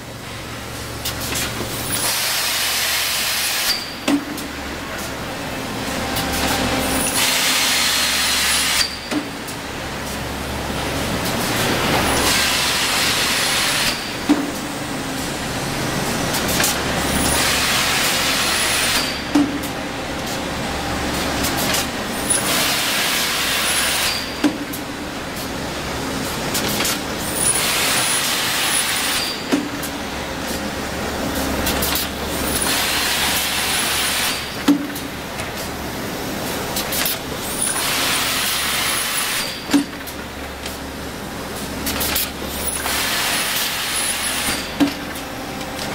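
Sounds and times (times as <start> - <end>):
low machine drone: 3.8 - 13.4, 14.2 - 22.2, 45.0 - 45.9.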